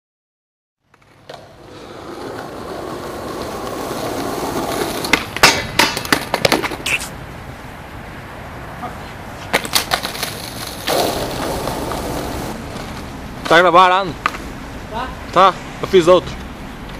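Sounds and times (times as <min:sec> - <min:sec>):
skateboard wheels rolling on concrete: 0:00.8 - 0:16.9
skateboard clacking and clattering: 0:00.9 - 0:07.0, 0:09.5 - 0:12.6.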